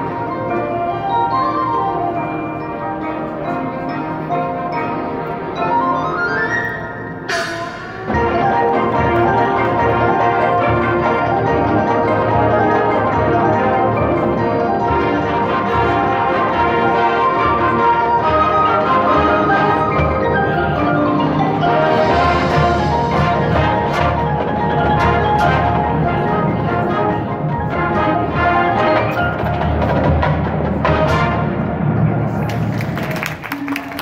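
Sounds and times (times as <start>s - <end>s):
marimbas and mallet percussion: 0.0s - 31.0s
marching band playing: 0.0s - 34.0s
sharp percussion hits: 7.3s - 12.7s.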